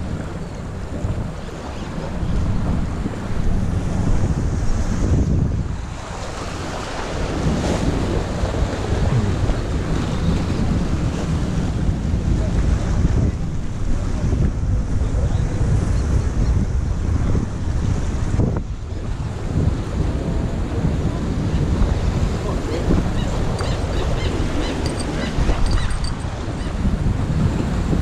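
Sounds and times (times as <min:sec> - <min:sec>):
waves washing against rocks: 0:00.0 - 0:14.8
wind buffeting microphone: 0:00.0 - 0:28.0.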